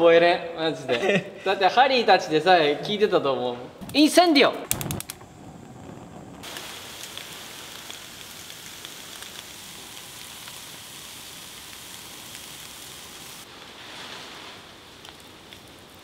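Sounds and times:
crackling pops: 0:03.8 - 0:16.0
food sizzling on a grill: 0:06.4 - 0:16.0.

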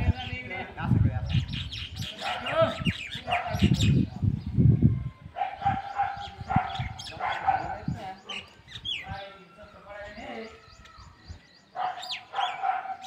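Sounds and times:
people's voices: 0:00.0 - 0:13.0
animal calls: 0:11.7 - 0:13.0.

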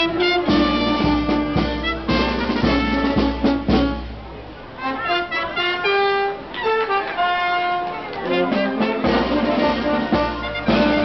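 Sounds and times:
drum beats: 0:00.0 - 0:04.4, 0:07.9 - 0:11.0
brass band playing march: 0:00.0 - 0:11.0.

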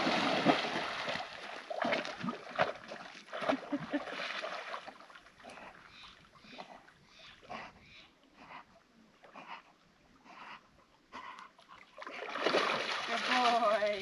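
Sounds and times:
dog splashing in water: 0:00.0 - 0:04.9, 0:12.0 - 0:14.0.

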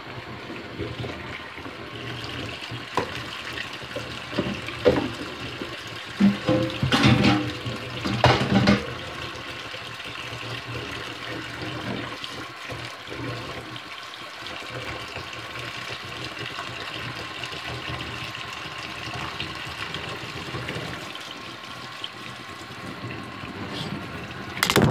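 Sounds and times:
faucet running into sink: 0:00.0 - 0:24.9
dishes being washed: 0:00.6 - 0:13.6.

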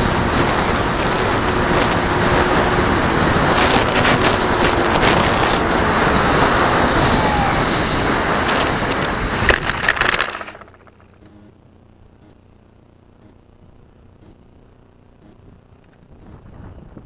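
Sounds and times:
airflow rushing over camera: 0:00.6 - 0:11.5.

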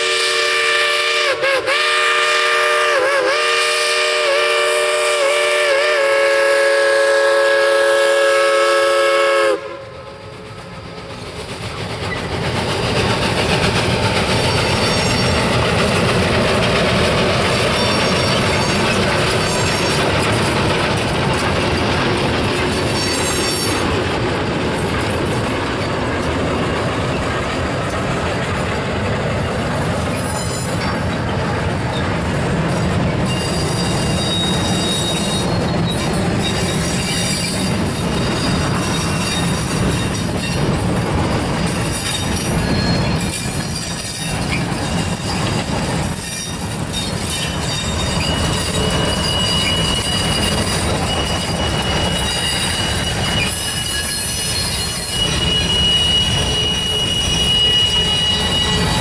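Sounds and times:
steam locomotive chime whistle: 0:00.0 - 0:10.5, 0:32.8 - 0:40.7, 0:41.5 - 0:59.0
freight cars rumbling on rails: 0:00.0 - 0:59.0
faint wheel squeals: 0:33.1 - 0:40.6, 0:41.6 - 0:59.0.

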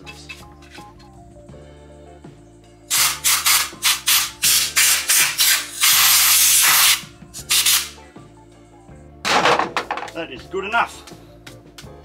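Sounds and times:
compressed air blow gun hissing: 0:02.9 - 0:08.0.

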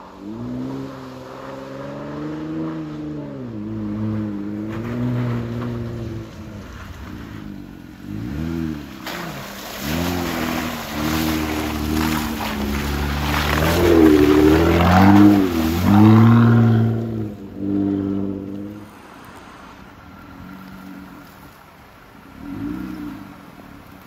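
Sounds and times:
truck engine revving: 0:00.0 - 0:18.8
tyres churning wet mud: 0:00.0 - 0:24.0.

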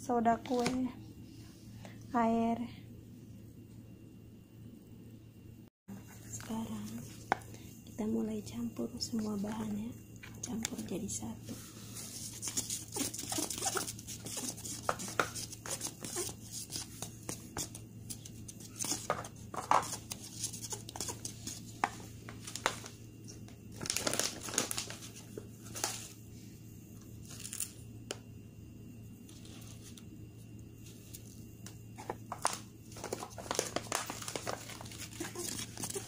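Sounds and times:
plastic packets crinkling: 0:22.3 - 0:23.0, 0:23.7 - 0:26.0, 0:32.2 - 0:36.0.

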